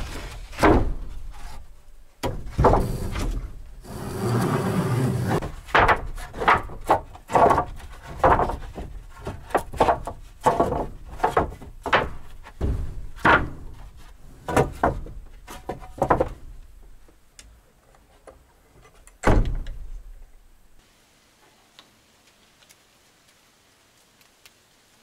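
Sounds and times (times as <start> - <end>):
irregular knocks and thumps: 2.2 - 3.7, 5.2 - 17.1.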